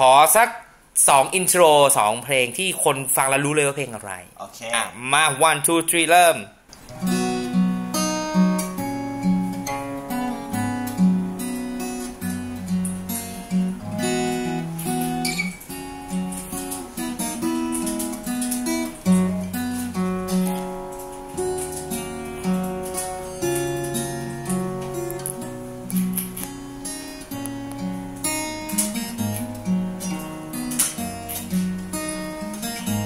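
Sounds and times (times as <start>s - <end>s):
fingerstyle acoustic guitar: 6.7s - 33.0s.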